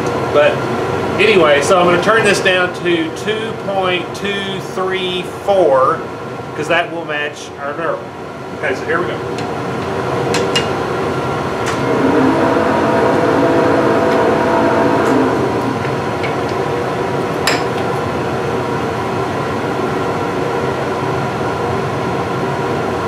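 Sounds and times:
metal lathe humming: 9.8s - 19.1s.

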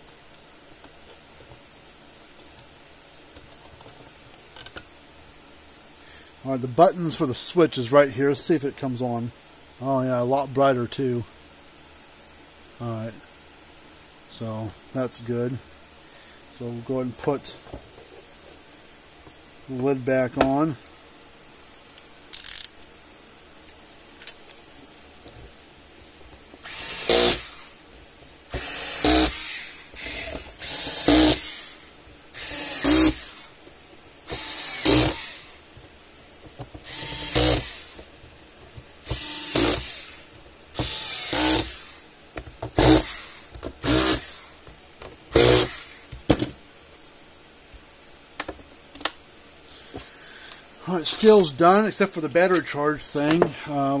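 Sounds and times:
cordless drill whirring: 26.6s - 27.8s, 28.5s - 33.5s, 34.3s - 35.6s, 36.8s - 38.1s, 39.0s - 42.0s, 42.8s - 44.6s, 45.3s - 46.1s.

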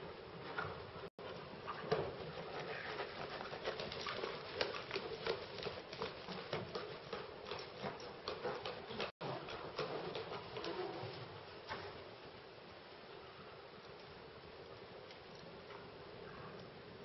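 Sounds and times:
horse hooves trotting on sand: 0.3s - 12.9s.

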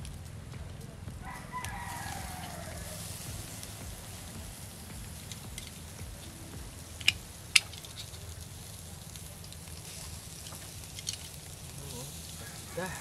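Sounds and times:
meat sizzling on a grill: 0.0s - 13.0s
wood fire crackling: 0.0s - 13.0s
sharp clicks: 5.0s - 8.4s.

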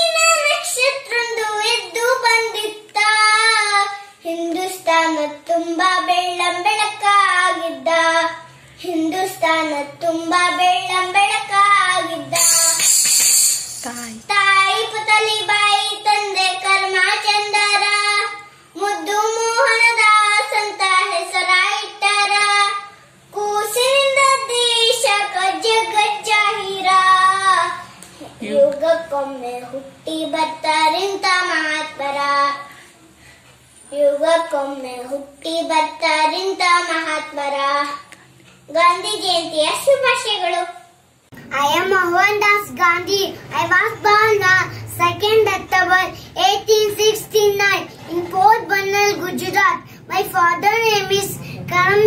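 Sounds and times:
boy singing: 0.0s - 32.7s, 41.5s - 52.0s
short hiss: 12.3s - 14.3s.

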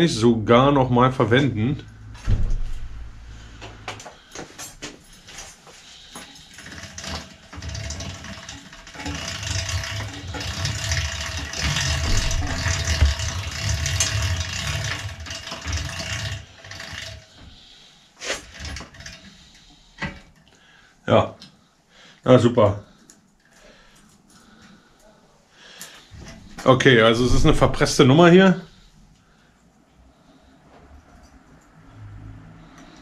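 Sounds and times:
mechanical rumble with rattling: 1.4s - 20.4s, 26.0s - 29.0s.

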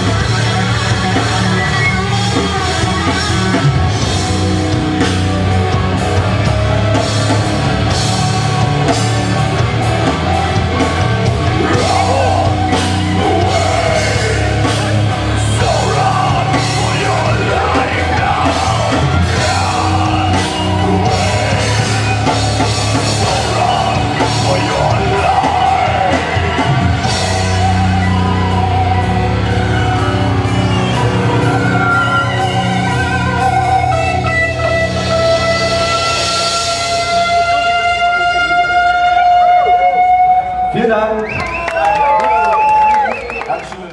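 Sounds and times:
live rock band playing: 0.0s - 43.9s
person singing: 11.4s - 30.1s.

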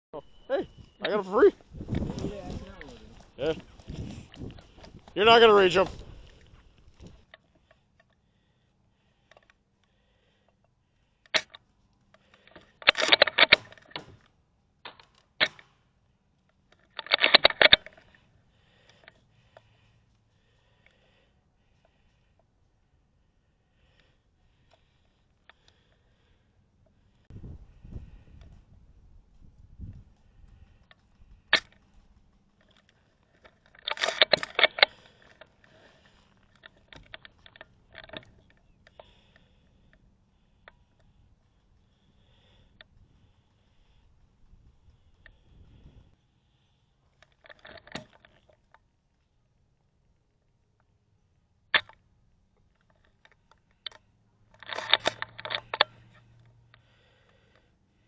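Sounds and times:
rifle mechanism clicking and clattering: 9.2s - 15.8s, 16.4s - 19.8s, 30.2s - 42.2s, 47.1s - 48.9s, 51.7s - 52.0s, 52.6s - 57.6s.

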